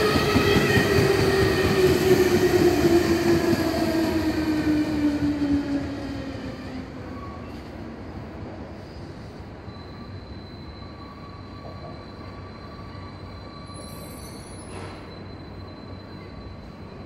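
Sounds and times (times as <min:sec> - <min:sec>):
train rumbling: 0:00.0 - 0:17.0
high wheel squeal: 0:08.5 - 0:17.0.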